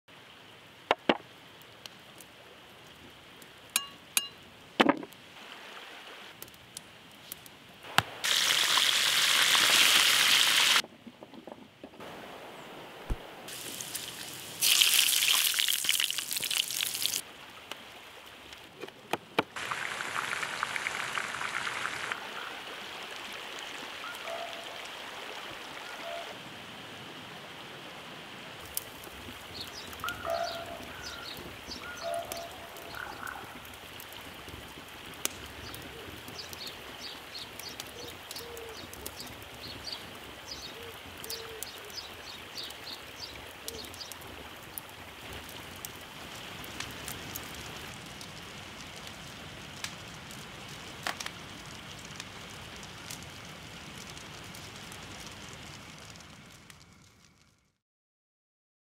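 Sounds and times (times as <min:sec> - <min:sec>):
sharp knocks and clinks: 0:03.8 - 0:04.4
hissing bubbling noise: 0:07.8 - 0:10.8, 0:12.0 - 0:17.2, 0:19.6 - 0:23.8
water boiling in a pot: 0:07.9 - 0:10.8, 0:13.5 - 0:18.2, 0:19.6 - 0:24.2, 0:28.6 - 0:56.7.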